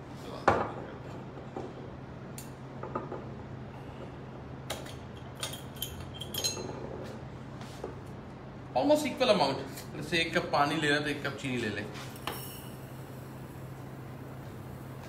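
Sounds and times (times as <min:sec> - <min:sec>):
kitchenware clicks and clinks: 0:04.7 - 0:06.8.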